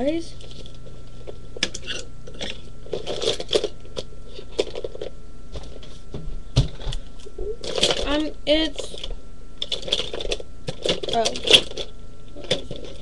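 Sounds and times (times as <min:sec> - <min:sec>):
makeup items clattering: 0:09.6 - 0:13.0.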